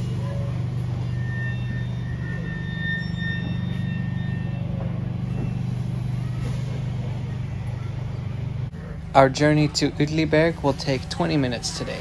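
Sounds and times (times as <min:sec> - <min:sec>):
thin high whine: 0:00.0 - 0:09.0
electric train humming: 0:00.0 - 0:12.0.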